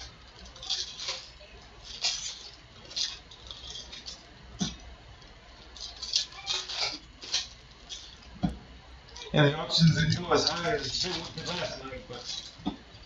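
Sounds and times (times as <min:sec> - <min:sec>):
foil wrapper crinkling and tearing: 0:00.0 - 0:04.4, 0:05.2 - 0:08.4, 0:10.2 - 0:13.0.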